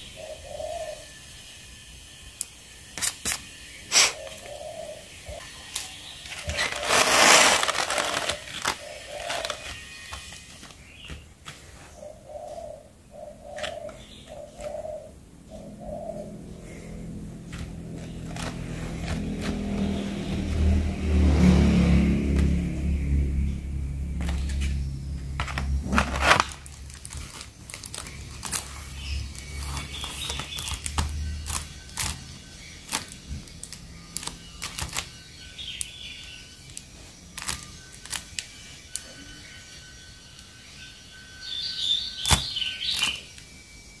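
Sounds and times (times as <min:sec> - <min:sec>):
low steady hum: 0:00.0 - 0:41.8
plastic packaging clicks and crinkles: 0:05.7 - 0:11.6, 0:17.5 - 0:19.6, 0:25.4 - 0:35.9, 0:36.6 - 0:39.1, 0:42.2 - 0:43.5.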